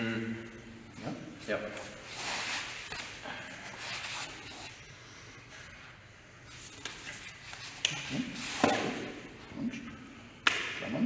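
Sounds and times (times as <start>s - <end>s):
clothing rubbing and rustling: 1.4s - 4.8s.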